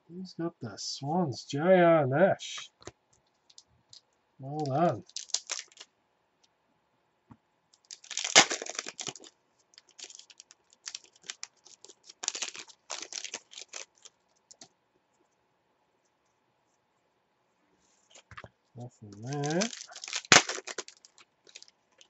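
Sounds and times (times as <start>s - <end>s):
wrapper crinkles and clicks: 3.2s - 5.9s, 7.8s - 14.7s, 19.1s - 22.0s
foil wrapper tearing: 4.6s - 5.9s, 7.8s - 14.6s, 19.1s - 21.7s.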